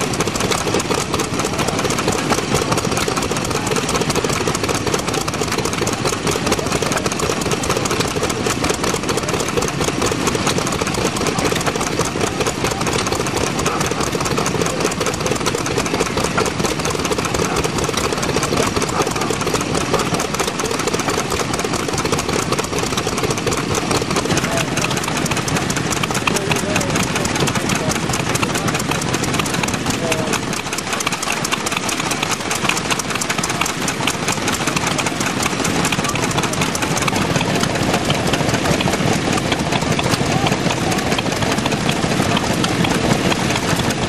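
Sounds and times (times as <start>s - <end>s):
stationary engine running: 0.0s - 44.0s.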